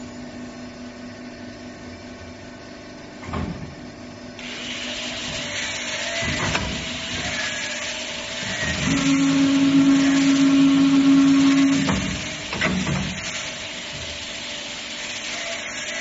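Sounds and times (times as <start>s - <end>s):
machine motor hum: 0.7s - 16.0s
hiss-like whir of feeding carriage: 1.0s - 16.0s
machine clunk: 11.6s - 13.4s.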